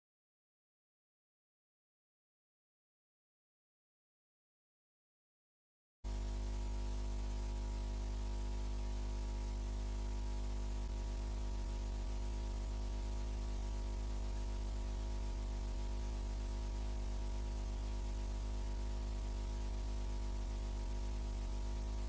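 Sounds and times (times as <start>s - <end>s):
electrical hum: 6.1s - 22.0s
static hiss: 6.1s - 22.0s.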